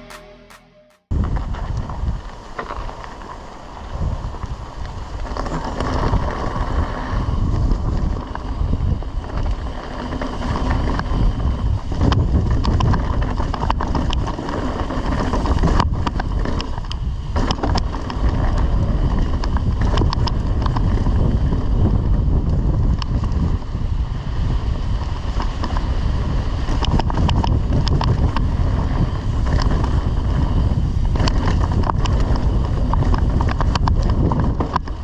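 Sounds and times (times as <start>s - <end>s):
wind buffeting microphone: 1.1s - 35.0s
bike clicks and rattles: 1.3s - 35.0s
tyres rolling on dirt: 1.4s - 22.2s.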